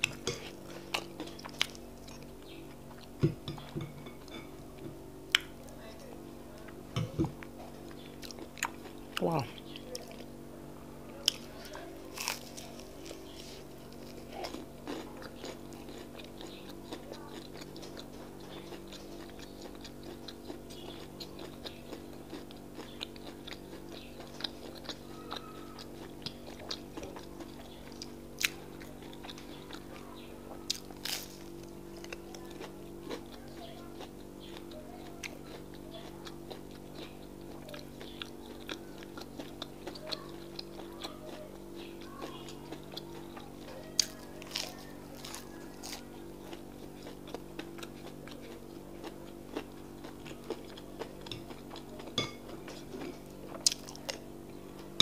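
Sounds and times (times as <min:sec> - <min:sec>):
chewing with soft crunching: 0:00.0 - 0:10.4, 0:11.0 - 0:55.0.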